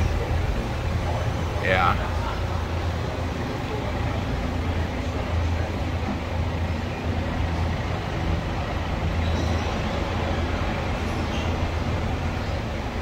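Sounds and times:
ferry engines rumbling: 0:00.0 - 0:13.0.

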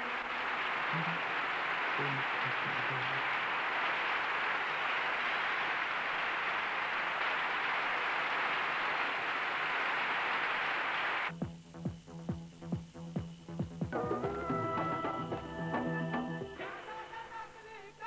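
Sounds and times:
crowd cheering and applauding: 0:00.0 - 0:11.3.

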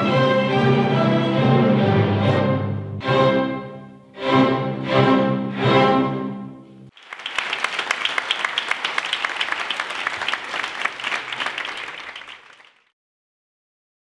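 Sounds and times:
orchestral string music: 0:00.0 - 0:06.9
audience applauding: 0:06.9 - 0:12.9.

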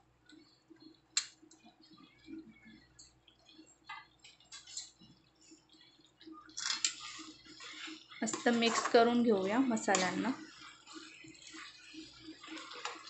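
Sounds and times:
vegetables frying: 0:06.5 - 0:13.0
spoon scraping pan: 0:06.6 - 0:13.0.

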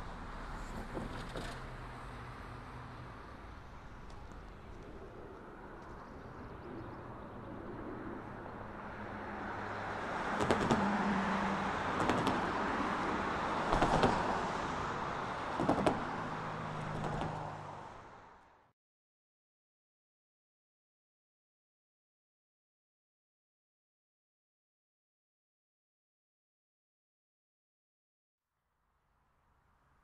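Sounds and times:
road vehicle passing: 0:00.0 - 0:18.7.

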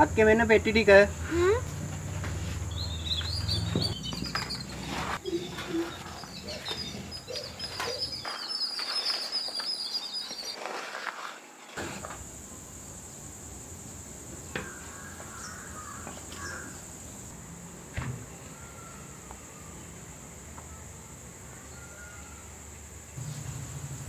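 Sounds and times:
birds chirping: 0:00.0 - 0:11.1, 0:13.9 - 0:17.3.

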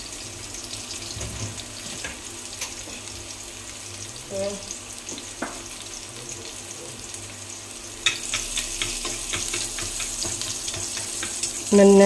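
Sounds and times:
garlic sizzling in hot oil: 0:00.0 - 0:12.0.

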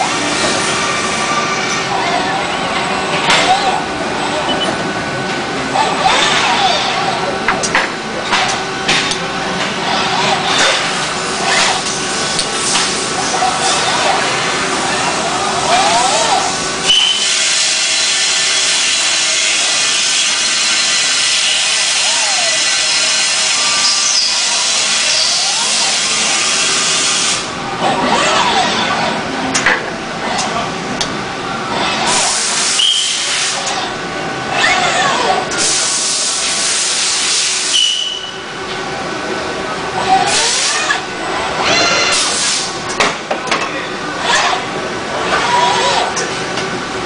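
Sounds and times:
lathe machining hiss: 0:16.3 - 0:27.6, 0:32.0 - 0:33.8, 0:35.5 - 0:38.1, 0:42.1 - 0:42.8.

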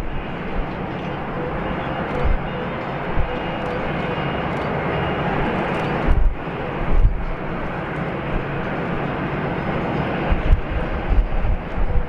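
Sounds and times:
jet engines rumbling: 0:00.0 - 0:12.0.

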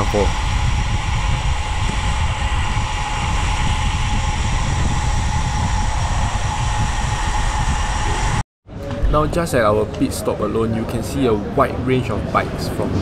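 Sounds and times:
wind rushing over microphone: 0:00.0 - 0:10.2
thin steady whine: 0:00.0 - 0:11.2.

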